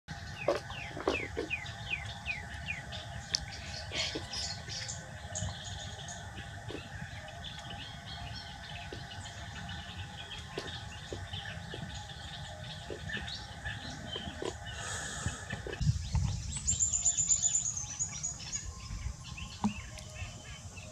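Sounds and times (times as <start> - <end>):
steady low hum: 0.1 - 20.9.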